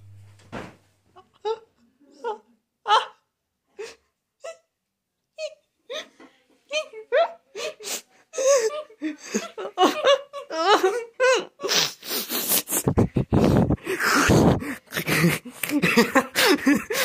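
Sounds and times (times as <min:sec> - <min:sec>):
person laughing wildly: 0:12.7 - 0:17.0.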